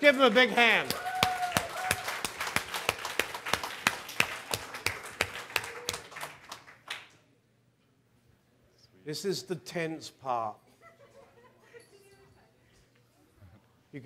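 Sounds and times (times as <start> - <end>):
audience clapping: 0.0 - 7.2.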